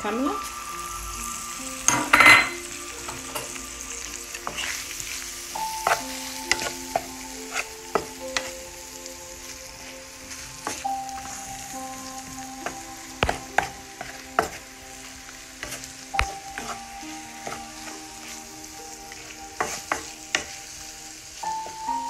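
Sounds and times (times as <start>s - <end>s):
prawns and onion sizzling in oil: 0.0s - 22.0s
spatula scraping a pan: 4.4s - 8.5s.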